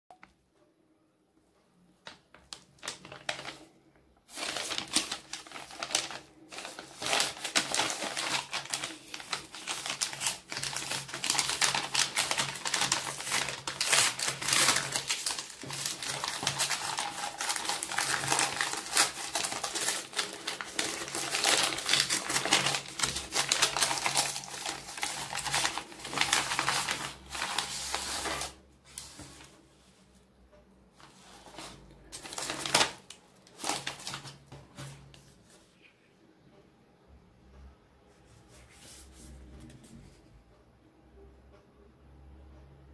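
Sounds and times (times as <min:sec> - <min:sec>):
paper mailer crinkling and tearing: 0:02.8 - 0:03.7, 0:04.3 - 0:29.4, 0:31.5 - 0:34.4.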